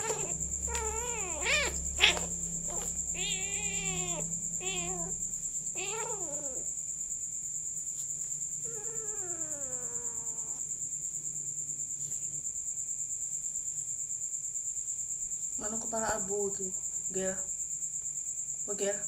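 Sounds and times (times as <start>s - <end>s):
kitten meowing: 0.0s - 6.6s, 8.7s - 10.6s
crickets chirring: 0.0s - 19.0s.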